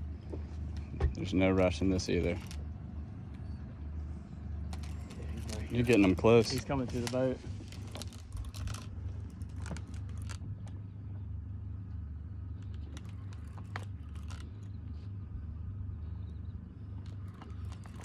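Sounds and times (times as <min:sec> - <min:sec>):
boat engine idling: 0:00.0 - 0:18.0.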